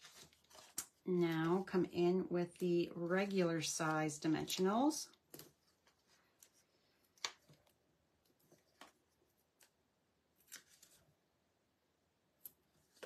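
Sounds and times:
paper rustling and clicking: 0.0s - 1.6s, 10.4s - 11.0s.

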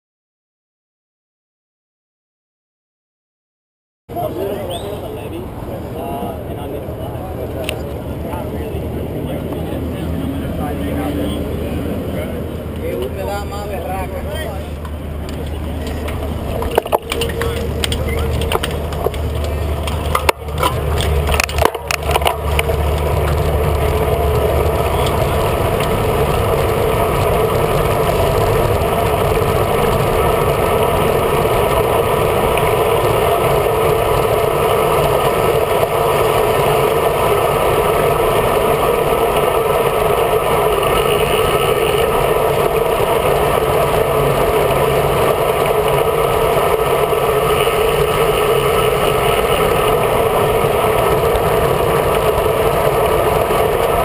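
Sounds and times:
wind and road noise: 4.1s - 54.0s.

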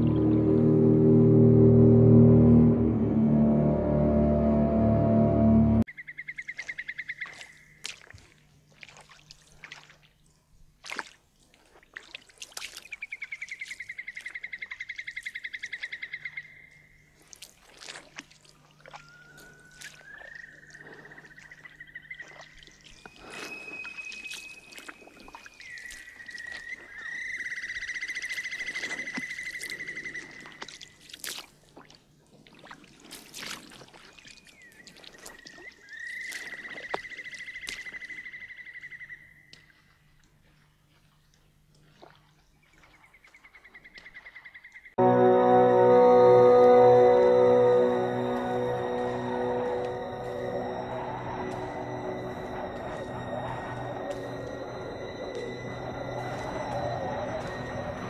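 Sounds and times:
high fast-pulsing trills: 0.0s - 5.8s, 45.0s - 58.0s
chirps and ticks: 18.8s - 31.0s, 34.2s - 39.8s, 41.3s - 44.9s.

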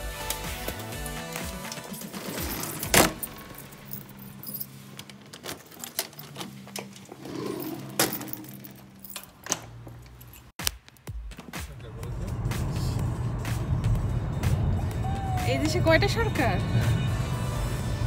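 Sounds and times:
keys jangling: 0.2s - 10.6s.

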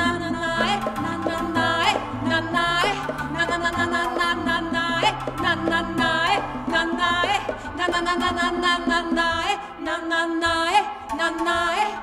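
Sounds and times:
bass line: 0.0s - 9.5s
hand drum: 0.0s - 11.9s
keyboard: 0.0s - 12.0s
women singing: 0.0s - 12.0s.

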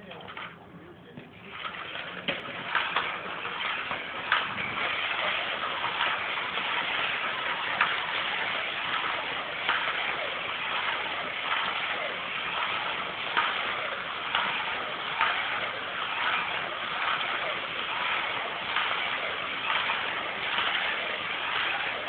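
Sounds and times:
slot car motor whirring: 1.4s - 22.0s.

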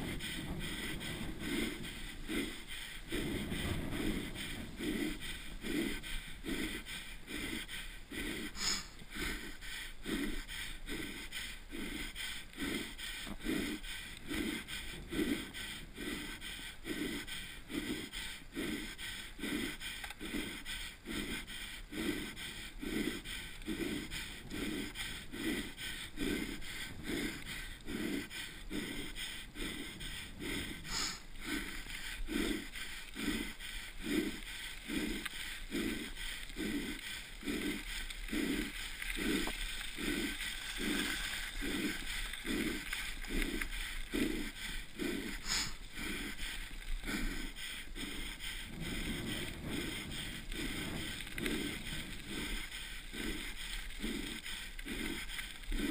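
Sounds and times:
person breathing hard: 0.0s - 55.9s
wind and tyres hiss: 0.0s - 55.9s.

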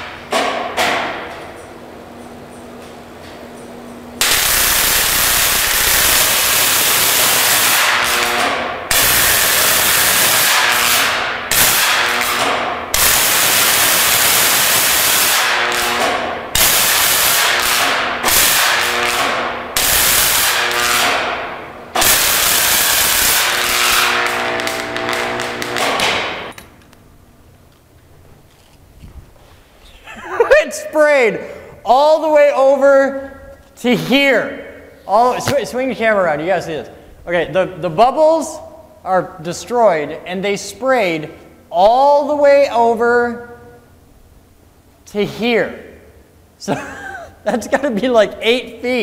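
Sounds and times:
electric arc hissing buzz: 4.2s - 26.6s.

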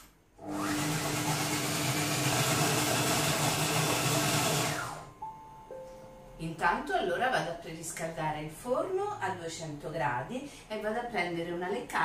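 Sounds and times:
food processor motor whirring: 0.4s - 5.1s.

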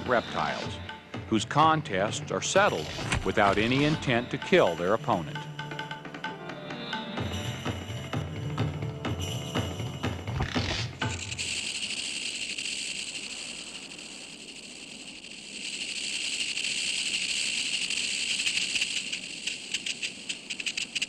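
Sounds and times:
rattlesnake rattling: 0.0s - 1.1s, 2.4s - 5.8s, 10.3s - 21.0s
drum-led music: 0.0s - 11.6s.

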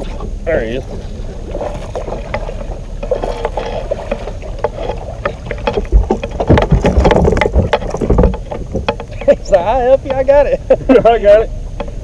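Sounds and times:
thumps on boat deck: 1.7s - 10.4s.

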